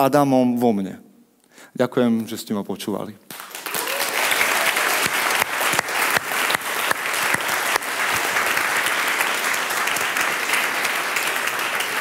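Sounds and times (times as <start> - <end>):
audience applauding: 3.3 - 12.0.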